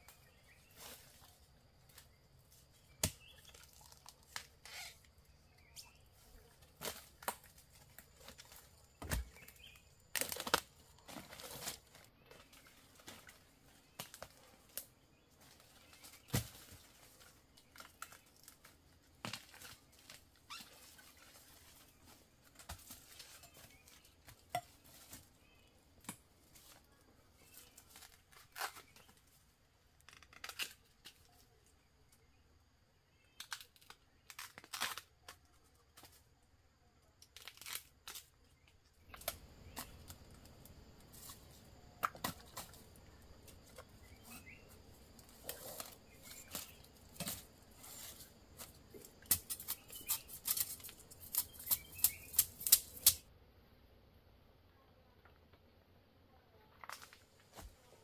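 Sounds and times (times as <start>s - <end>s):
tearing and crackling: 6.8s - 12.0s, 27.5s - 29.2s, 30.0s - 31.3s, 33.4s - 35.5s, 37.2s - 38.4s, 45.2s - 53.2s.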